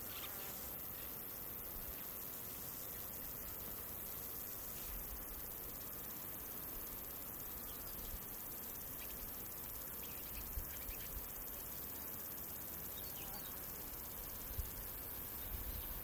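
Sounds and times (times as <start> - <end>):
high insect drone: 0.0 - 16.0
steady hiss: 0.0 - 16.0
faint chirps: 6.6 - 16.0.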